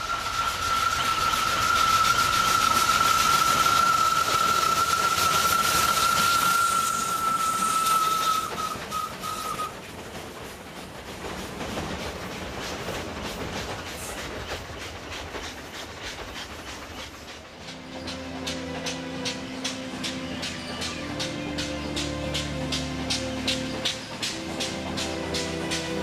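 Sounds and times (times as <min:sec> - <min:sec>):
steam locomotive whistle: 0:00.0 - 0:09.8
train rumble and clicking wheels: 0:00.0 - 0:26.0.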